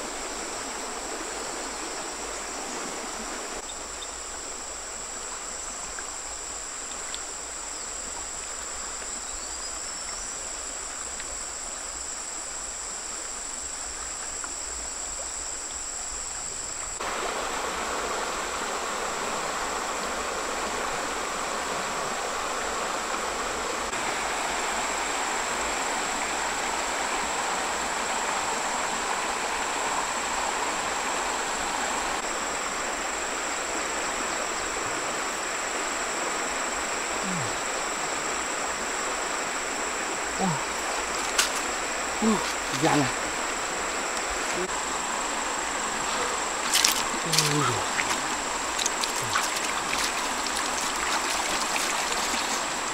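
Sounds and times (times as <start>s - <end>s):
high-pitched insect trill: 0.0s - 17.0s, 23.9s - 52.9s
stream rushing over rocks: 17.0s - 52.9s.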